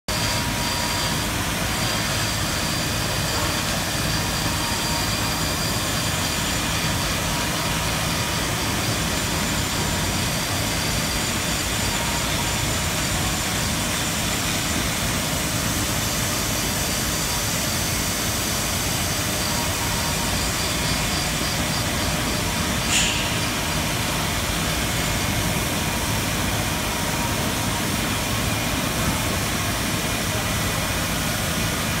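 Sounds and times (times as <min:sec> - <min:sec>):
extraction system running: 0:00.1 - 0:32.0
pneumatic carving tool on stone: 0:16.2 - 0:25.7.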